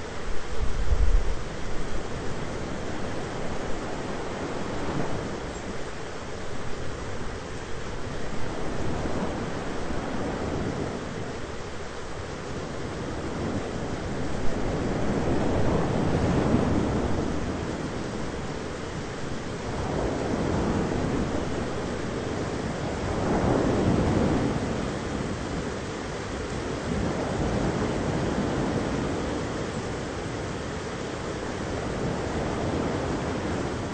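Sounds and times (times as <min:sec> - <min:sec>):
thunderstorm rushing noise: 0:13.0 - 0:25.7.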